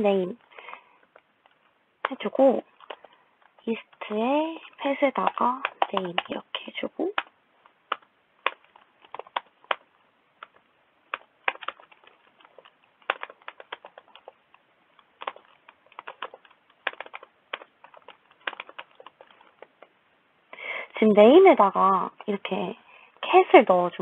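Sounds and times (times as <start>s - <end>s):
keyboard typing clicks: 4.8s - 6.4s, 10.4s - 14.4s, 15.1s - 19.7s.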